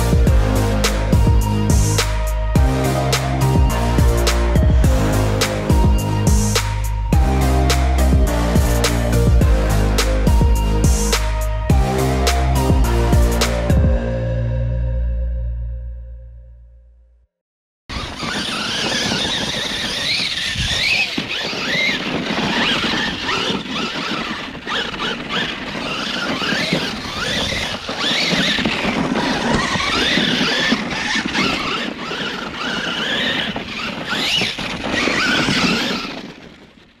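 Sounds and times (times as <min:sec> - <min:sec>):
electric motor whining: 0:00.0 - 0:13.8, 0:17.9 - 0:36.8
tyres on dirt: 0:17.9 - 0:37.0.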